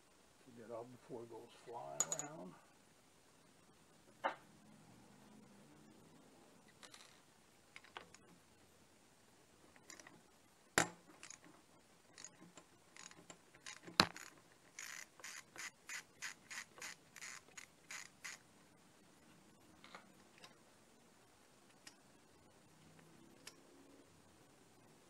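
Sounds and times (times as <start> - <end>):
socket ratchet clicking: 12.2 - 18.4.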